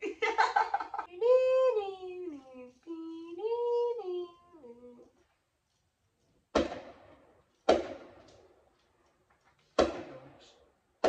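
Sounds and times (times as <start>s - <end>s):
fireworks bangs: 6.5s - 8.8s, 9.7s - 10.6s.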